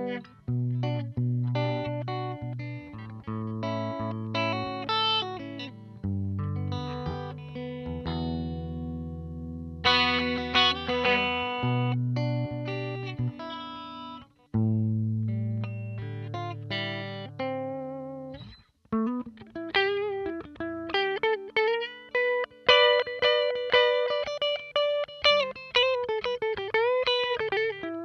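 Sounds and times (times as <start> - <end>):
clean electric guitar: 0.0 - 28.0.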